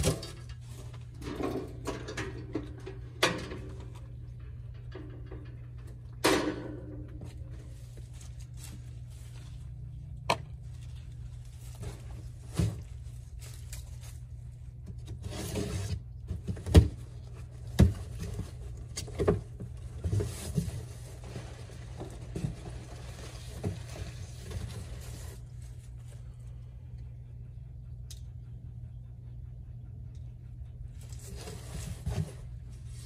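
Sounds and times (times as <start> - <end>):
low hum: 0.0 - 33.0
cardboard rustling: 10.6 - 26.2, 31.1 - 33.0.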